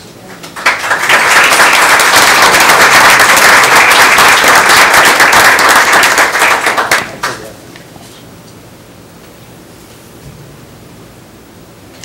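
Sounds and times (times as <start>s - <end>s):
audience applauding: 0.6s - 7.5s.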